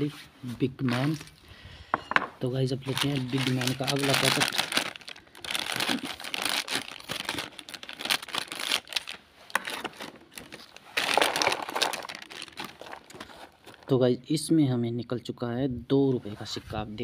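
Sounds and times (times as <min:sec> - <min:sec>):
plastic snack packet crinkling: 0:02.8 - 0:14.0
scissors cutting packet: 0:02.9 - 0:13.9
snacks pouring into plastic tray: 0:02.9 - 0:13.9.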